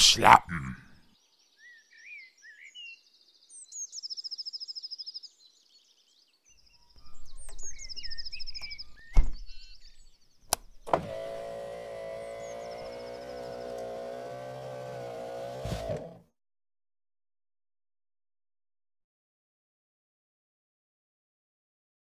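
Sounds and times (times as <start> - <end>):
songbird chirping and trilling: 0.8 - 15.0.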